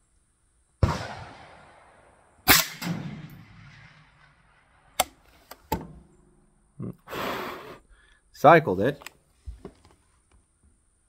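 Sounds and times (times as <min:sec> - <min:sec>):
suppressed rifle shot: 0:00.8 - 0:06.6.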